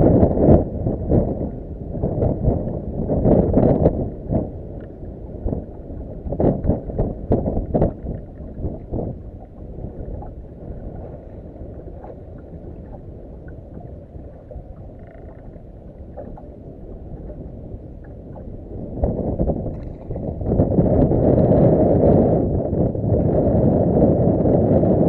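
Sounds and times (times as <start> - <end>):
wind buffeting microphone: 0.0 - 25.0
water lapping at boat hull: 0.3 - 21.5.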